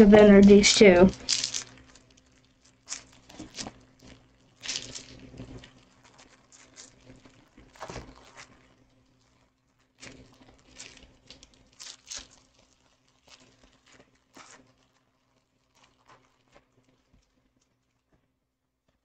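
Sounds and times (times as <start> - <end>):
card pack wrapper crinkling: 0.2 - 8.6, 10.0 - 14.9.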